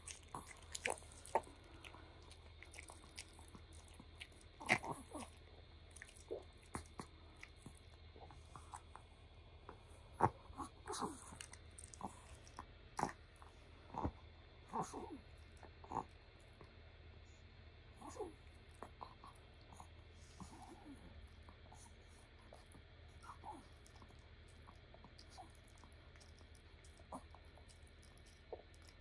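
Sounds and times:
dog licking lips: 0.0 - 5.3
dog chewing a treat: 0.0 - 9.1, 9.7 - 14.1, 22.5 - 29.0.

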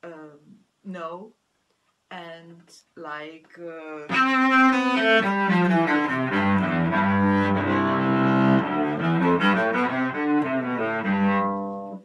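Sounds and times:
bowed cello melody: 4.1 - 12.0.

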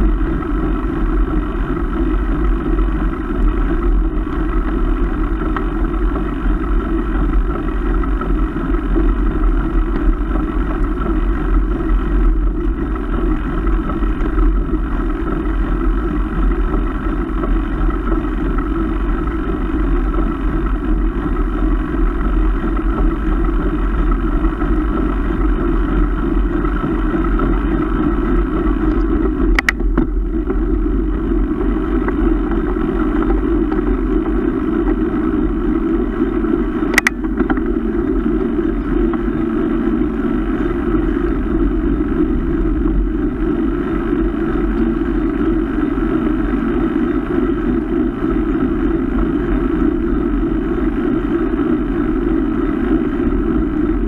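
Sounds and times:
wind and road noise: 0.0 - 54.0
sharp click: 29.5 - 29.8, 36.9 - 37.2.

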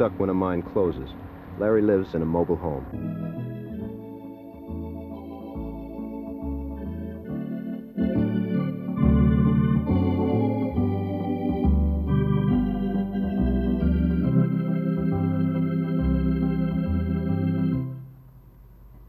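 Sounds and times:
organ playing chords: 0.0 - 18.1.

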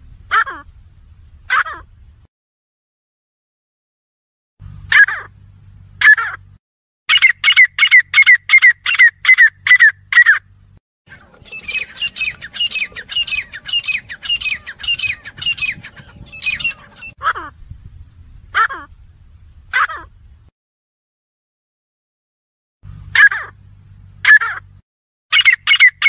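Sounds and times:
faint steady hum: 0.0 - 2.3, 4.6 - 6.6, 7.3 - 20.5, 22.8 - 24.8
francolin calling: 7.1 - 10.5, 11.1 - 17.6, 25.3 - 26.0.

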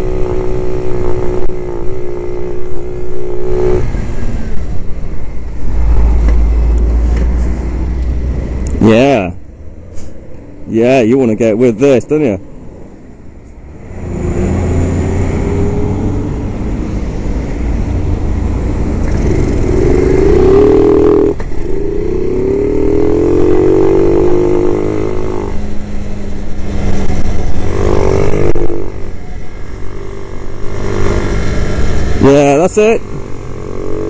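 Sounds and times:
wind noise on microphone: 0.0 - 8.6, 13.8 - 29.2
motorbike engine accelerating: 0.0 - 9.4, 13.8 - 34.0.

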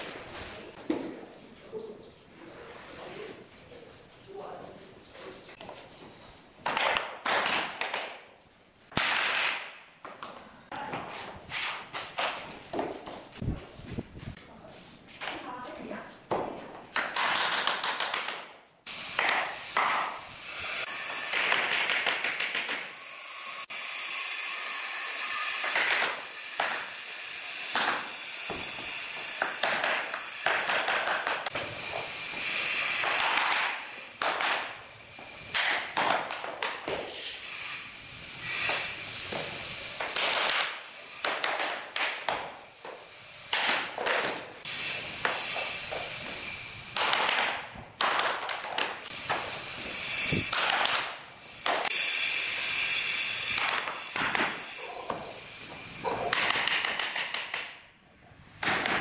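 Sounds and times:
loud hiss: 18.9 - 35.6, 37.0 - 43.7, 49.0 - 56.3.

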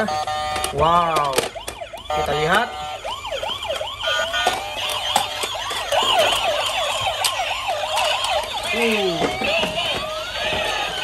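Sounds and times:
toy electronic sirens wailing: 0.0 - 11.0.

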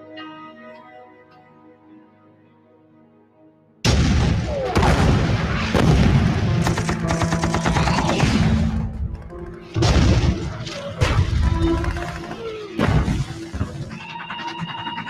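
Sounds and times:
music: 0.0 - 15.0
explosions: 3.8 - 7.1, 9.8 - 11.6
rifle fire: 3.9 - 8.8
machine-gun fire: 3.9 - 13.5.

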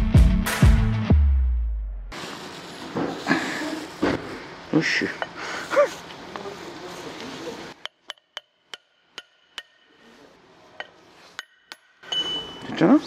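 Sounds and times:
hammer striking metal: 7.8 - 10.2, 10.8 - 12.8.

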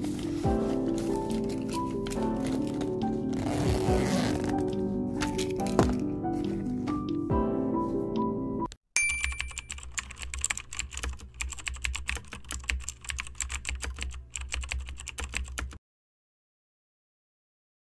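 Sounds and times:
rapid irregular clicking: 9.3 - 15.8.

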